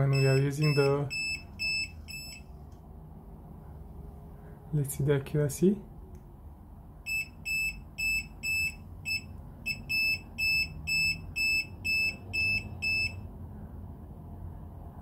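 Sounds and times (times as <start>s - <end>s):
voltage tester beeping: 0.0s - 2.4s, 7.1s - 13.2s.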